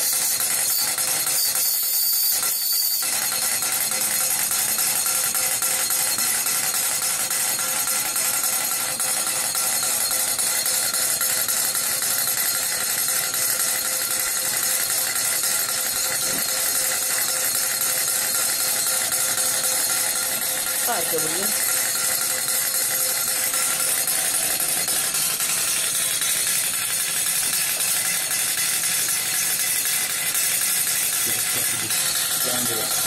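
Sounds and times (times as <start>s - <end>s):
toy steam engine chuffing: 0.0s - 33.0s.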